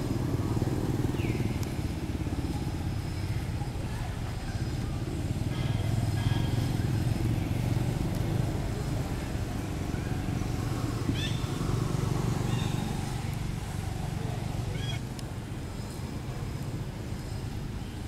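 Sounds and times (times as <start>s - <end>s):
vehicle engine rumble: 0.0s - 18.0s.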